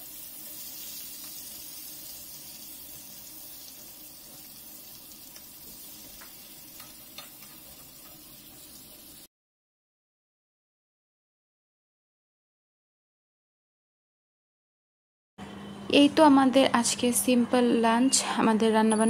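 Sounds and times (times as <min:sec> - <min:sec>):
fish sizzling in oil: 0:00.0 - 0:09.3
spatula scraping and tapping pan: 0:05.2 - 0:08.8.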